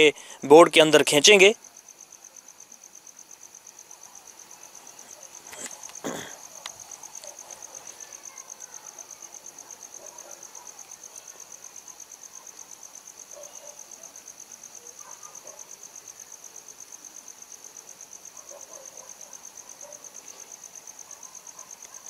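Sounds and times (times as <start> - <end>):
insect chirping: 0.0 - 22.0.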